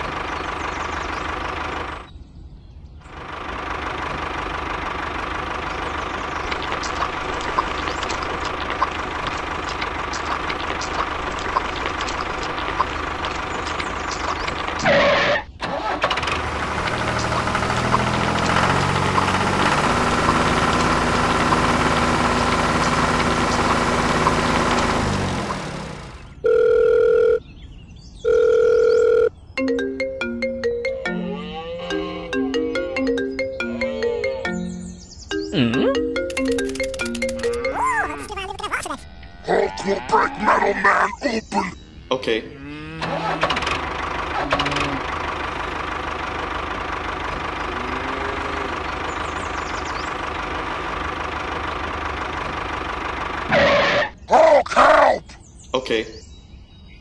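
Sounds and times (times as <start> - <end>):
tractor engine knocking: 0.0 - 2.1, 3.1 - 14.8, 15.6 - 26.4, 43.1 - 53.5
telephone ringtone: 26.4 - 27.4, 28.2 - 31.3, 35.4 - 38.3.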